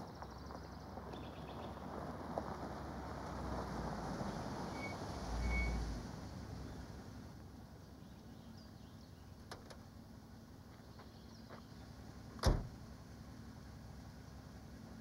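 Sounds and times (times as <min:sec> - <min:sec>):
car door shutting: 0:12.4 - 0:12.8.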